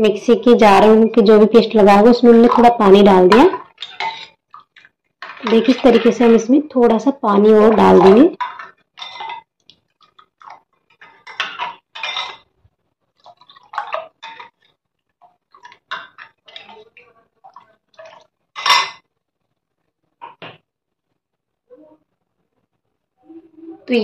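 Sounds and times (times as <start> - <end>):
metal ladle clinking in glass bowl: 8.0 - 9.5, 11.0 - 12.5.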